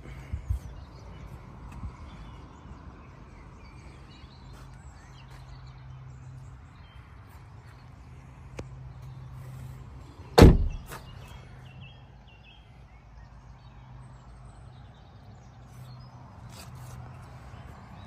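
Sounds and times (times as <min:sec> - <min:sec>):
car door shutting: 0:10.4 - 0:11.0.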